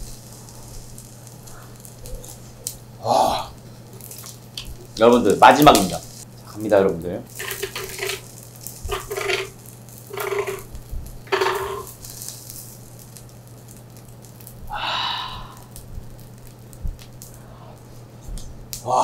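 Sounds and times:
metal spoon scraping griddle: 7.4s - 10.7s, 11.3s - 12.3s.

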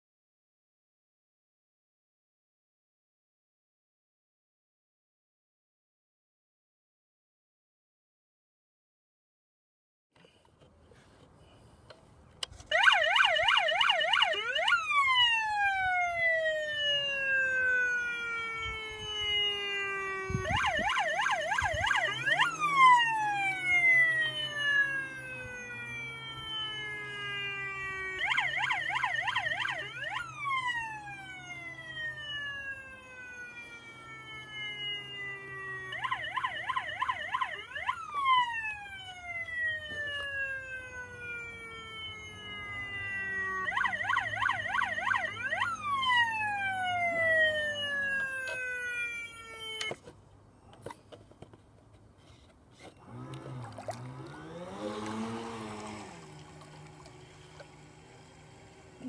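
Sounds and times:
warbling siren: 12.7s - 50.0s, 53.0s - 59.0s.

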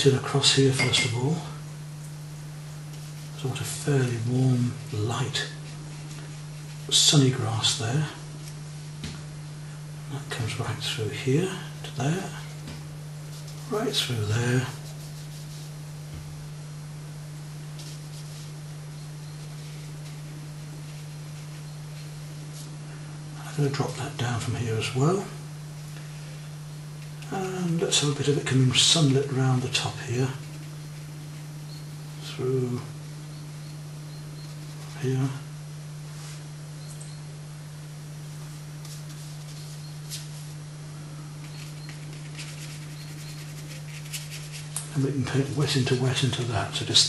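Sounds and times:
steady low hum: 0.0s - 47.0s
brush swishing on paper: 4.7s - 7.1s, 13.2s - 14.0s, 14.7s - 15.9s, 17.8s - 18.6s, 19.4s - 22.8s, 34.4s - 35.0s, 36.1s - 36.5s, 38.5s - 40.6s, 41.5s - 45.0s.

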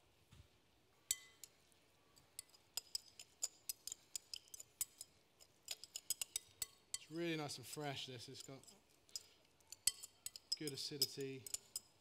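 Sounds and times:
clinks against glass bowl: 1.0s - 1.6s, 2.2s - 7.2s, 8.4s - 12.0s.

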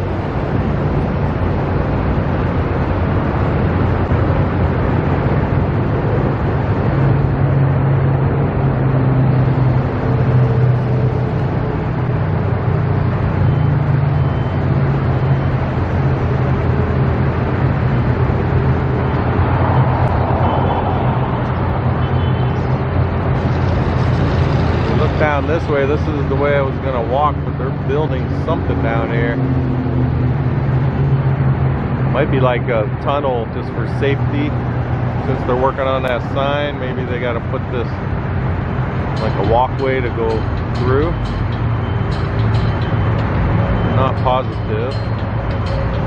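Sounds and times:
engine droning steadily: 0.0s - 46.0s.

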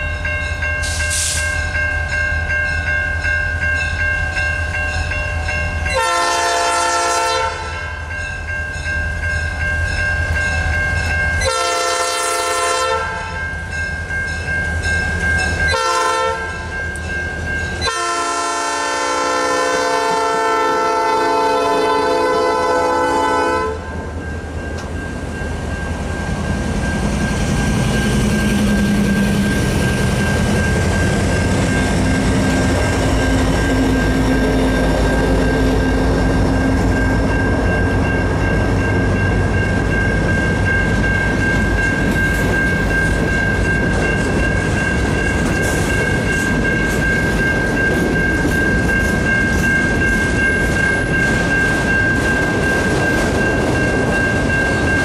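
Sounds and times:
freight train rumble and wheel clatter: 0.0s - 55.0s
locomotive horn: 5.9s - 7.8s, 11.4s - 13.4s, 15.7s - 16.7s, 17.8s - 23.9s.

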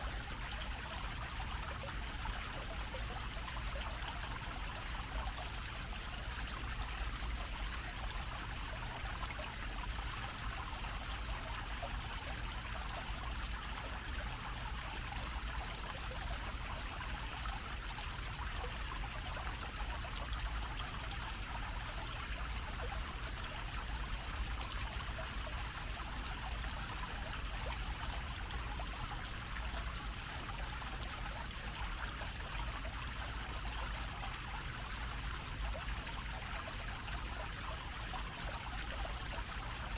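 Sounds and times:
fountain water splashing: 0.0s - 39.9s.

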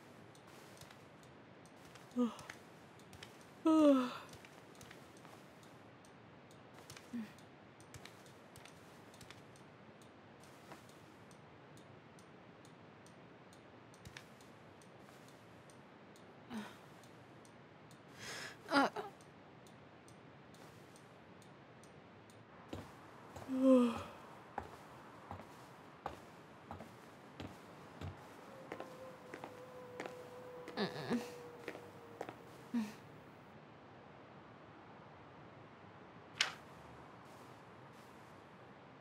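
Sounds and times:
woman sighing and humming: 2.2s - 2.6s, 3.6s - 4.4s, 7.1s - 7.4s, 16.5s - 16.8s, 18.2s - 19.1s, 23.4s - 25.4s, 28.0s - 33.1s
faint clicks: 4.2s - 18.1s.

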